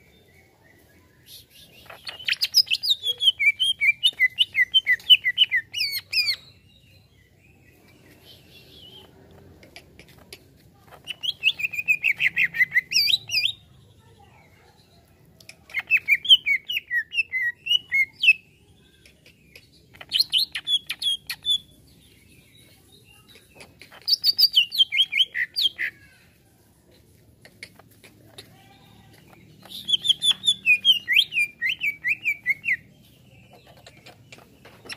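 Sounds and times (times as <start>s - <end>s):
bird chirping rapidly: 1.6s - 6.6s, 11.0s - 13.6s, 20.0s - 21.8s, 23.2s - 25.9s, 29.4s - 34.9s.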